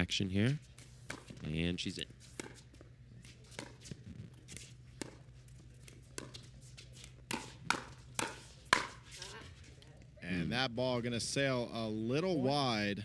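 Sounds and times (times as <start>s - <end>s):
paddles hitting plastic ball: 5.8s - 9.0s.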